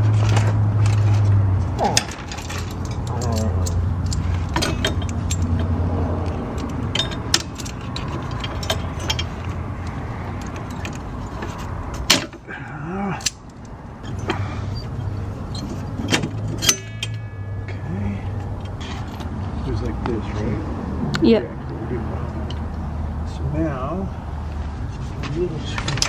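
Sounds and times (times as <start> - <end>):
metallic clicks and clinks: 0.2 - 14.4, 15.4 - 17.3.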